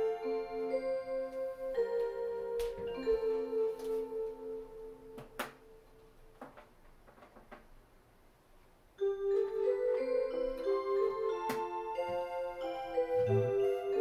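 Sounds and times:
clock playing electronic bell tunes: 0.0s - 5.1s, 9.0s - 14.0s.

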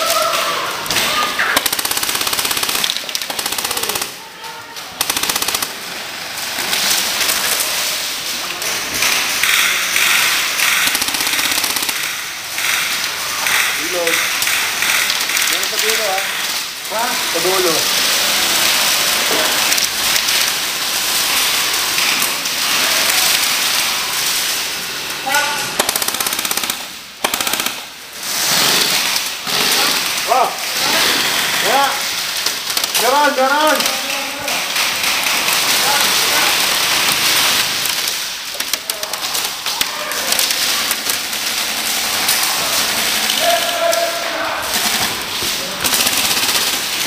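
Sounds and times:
airsoft gunfire: 1.0s - 4.2s, 5.0s - 5.9s, 9.0s - 15.8s, 25.8s - 28.0s, 45.8s - 47.0s.

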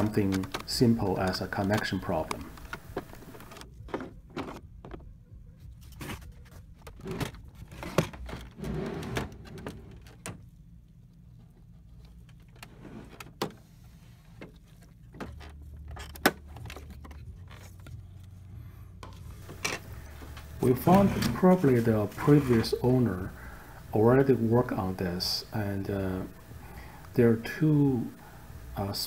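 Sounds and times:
plastic printer parts clicking: 0.0s - 5.1s
low steady hum: 0.0s - 29.0s.

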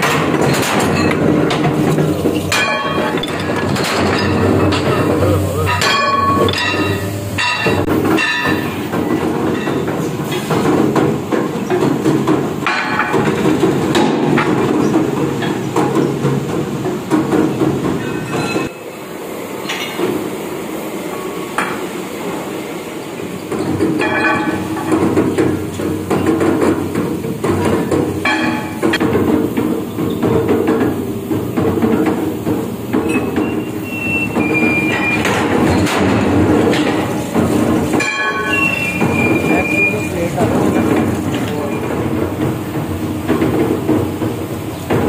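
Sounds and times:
metal plates clanking: 0.0s - 16.0s, 26.1s - 45.0s
workshop machinery rumbling: 0.0s - 45.0s
high metallic squeals: 33.1s - 35.4s, 38.0s - 40.3s.

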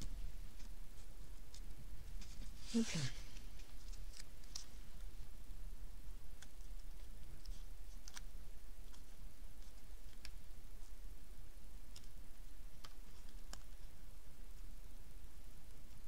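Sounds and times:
paper clicks and crinkles: 3.3s - 5.2s, 6.4s - 10.9s, 11.9s - 14.0s.

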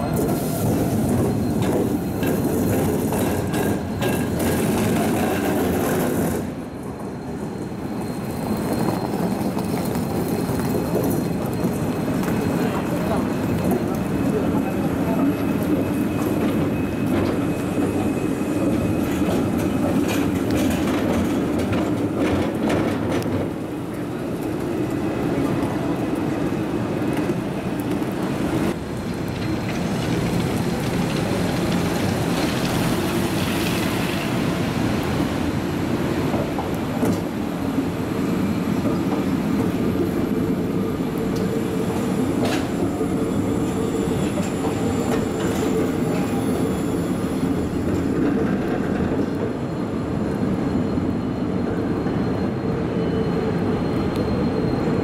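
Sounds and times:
tram wheel squeal: 0.0s - 55.0s
tram wheels rumbling on rails: 0.0s - 55.0s.

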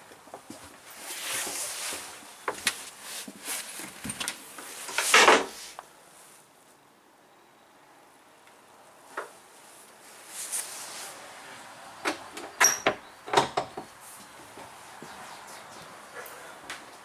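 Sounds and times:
rubbing rush: 9.6s - 11.4s.

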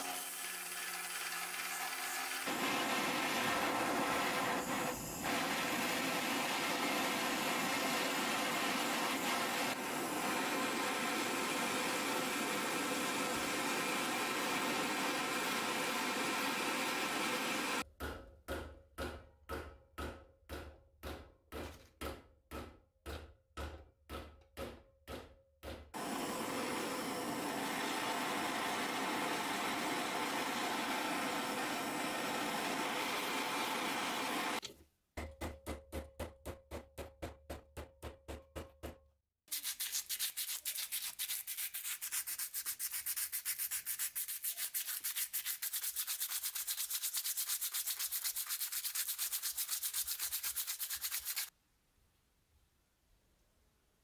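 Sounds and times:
blowtorch flame hissing: 2.5s - 17.8s, 26.0s - 34.6s
sandpaper sanding metal: 39.5s - 51.5s.

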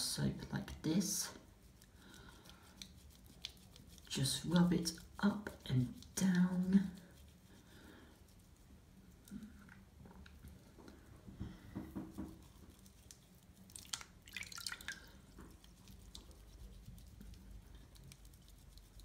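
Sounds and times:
soap squishing on wet foot: 1.5s - 7.4s, 12.0s - 19.0s
water dripping into sink: 13.8s - 15.1s.

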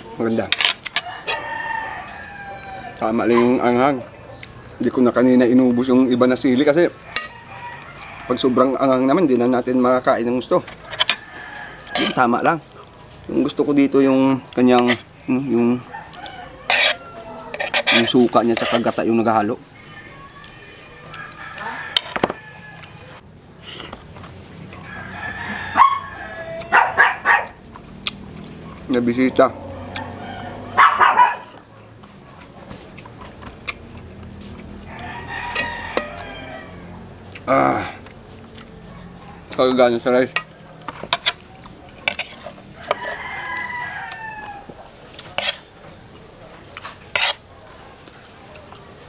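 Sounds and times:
rooster crowing: 1.0s - 3.4s, 5.7s - 9.1s, 10.8s - 12.5s, 15.7s - 18.2s, 19.4s - 23.2s, 24.8s - 27.5s, 29.2s - 31.7s, 34.4s - 38.0s, 42.4s - 45.6s.

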